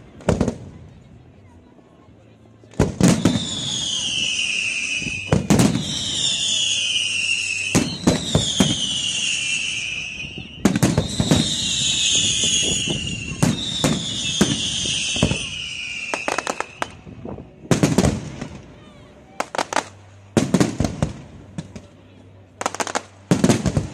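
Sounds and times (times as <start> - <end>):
crackling firework bangs: 0.2 - 0.8, 2.7 - 18.8, 19.4 - 21.9, 22.6 - 23.9
falling firework whistles: 2.9 - 17.2.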